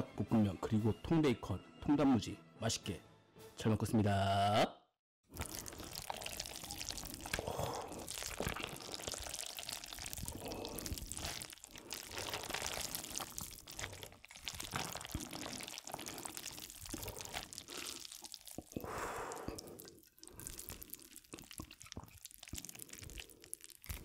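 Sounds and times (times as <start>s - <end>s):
noodles being slurped: 5.3s - 24.0s
wet sticky eating sounds: 5.3s - 24.0s
small mouth clicks: 10.0s - 24.0s.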